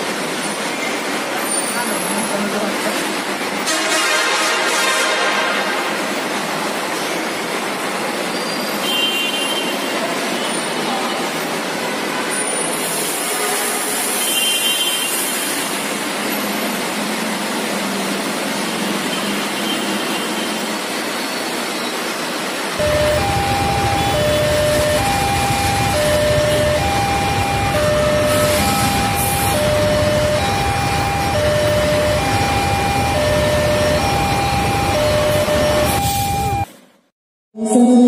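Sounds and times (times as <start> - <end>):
road traffic: 0.0 - 37.1
level crossing two-tone alarm: 22.8 - 36.8.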